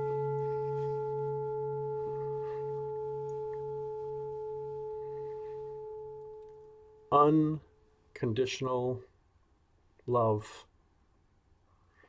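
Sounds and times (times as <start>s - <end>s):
singing bowl ringing: 0.0s - 7.9s.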